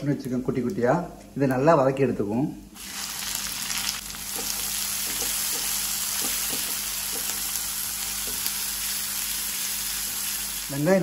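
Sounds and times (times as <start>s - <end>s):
onion sizzling in oil: 2.8s - 11.0s.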